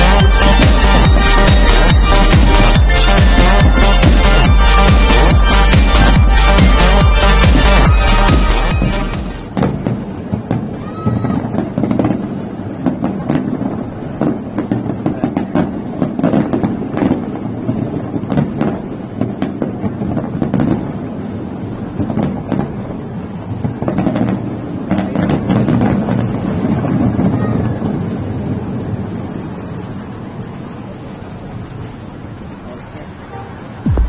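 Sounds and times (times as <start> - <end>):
fireworks bursting: 0.0 - 30.2, 33.7 - 34.0.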